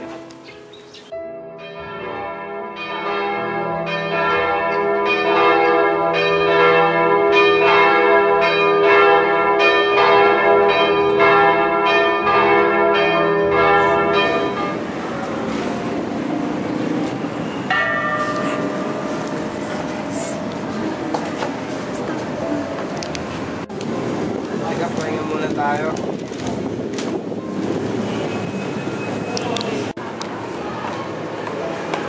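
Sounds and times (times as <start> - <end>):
church bells ringing: 0.0 - 21.1.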